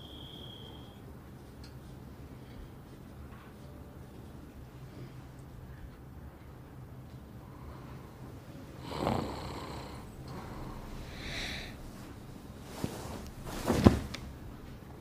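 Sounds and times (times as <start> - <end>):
man snoring: 8.8 - 11.7.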